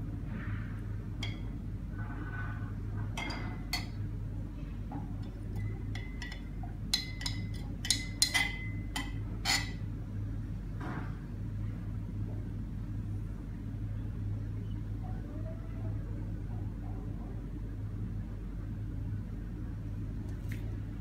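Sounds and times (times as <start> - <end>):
steady low hum: 0.0 - 21.0
glass rods clinking against beakers: 5.2 - 9.8.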